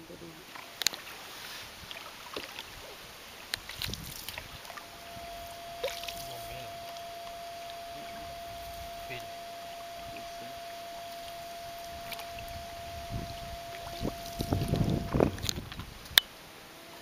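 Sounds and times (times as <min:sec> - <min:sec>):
water lapping: 0:00.0 - 0:16.1
boat knocking: 0:03.5 - 0:15.9
steady single tone: 0:03.8 - 0:16.2.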